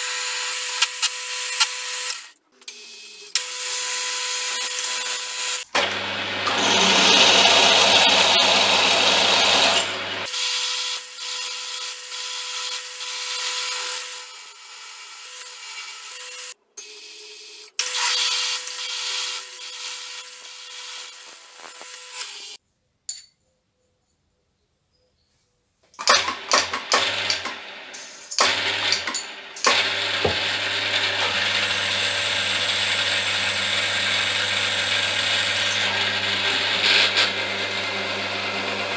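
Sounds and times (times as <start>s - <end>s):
milling machine whine: 5.8s - 10.3s, 26.0s - 38.9s.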